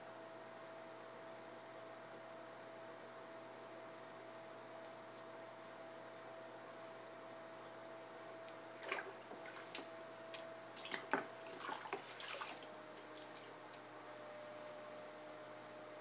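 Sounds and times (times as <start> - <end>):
pottery wheel motor hum: 0.0 - 16.0
water splashing and dripping: 8.8 - 9.9, 10.8 - 13.5.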